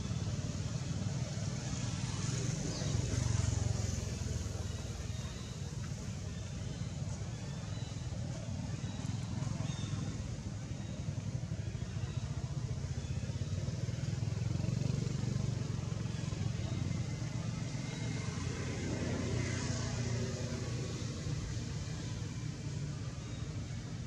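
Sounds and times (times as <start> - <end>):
motor traffic rumble: 0.0 - 24.0.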